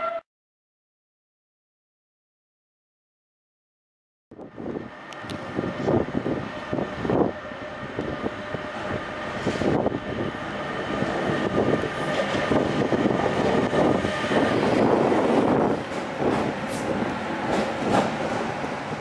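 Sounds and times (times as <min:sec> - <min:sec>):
electric locomotive whine: 0:04.4 - 0:19.0
train wheels clattering on rails: 0:10.9 - 0:19.0.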